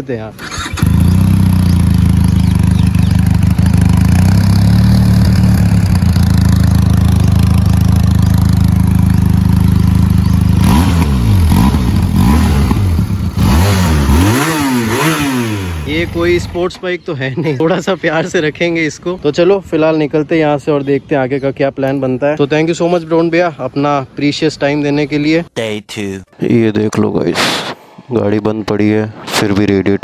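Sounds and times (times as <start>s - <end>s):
motorcycle engine idling: 0.4s - 16.8s
engine revving blips: 9.0s - 16.6s.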